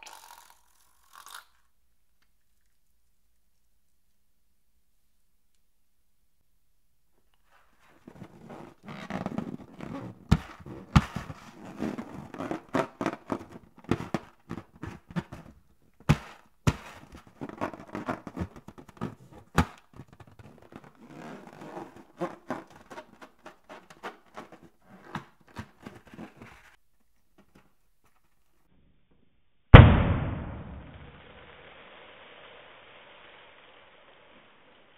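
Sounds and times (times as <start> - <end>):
balloon rubber squeaking: 7.9 - 26.8
sharp taps and thumps: 10.3 - 11.3, 13.8 - 17.3.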